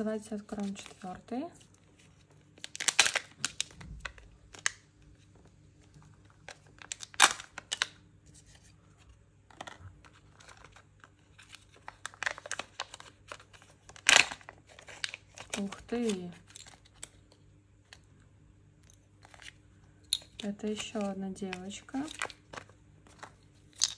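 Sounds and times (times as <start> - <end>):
foil seal crinkling and tearing: 2.2 - 4.8, 5.9 - 8.0, 9.5 - 17.3, 20.7 - 23.9.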